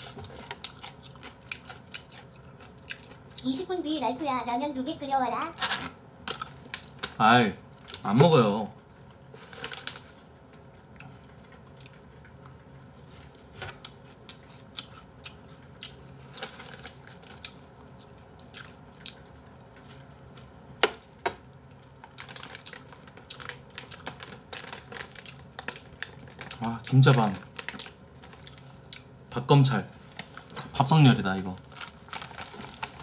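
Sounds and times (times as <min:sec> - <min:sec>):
plastic bag crinkling: 0:09.3 - 0:10.3, 0:16.2 - 0:17.6, 0:21.9 - 0:28.9, 0:29.9 - 0:33.0.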